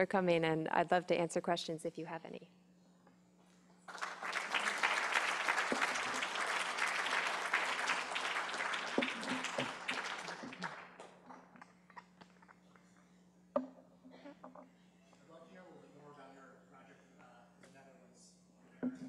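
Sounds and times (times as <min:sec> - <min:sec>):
audience applauding: 0:03.9 - 0:11.5.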